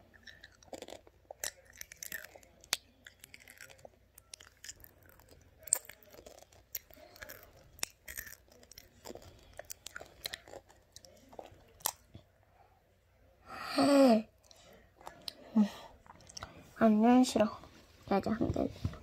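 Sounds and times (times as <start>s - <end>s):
child chewing crunchy sweet: 0.0s - 12.2s, 14.4s - 16.6s.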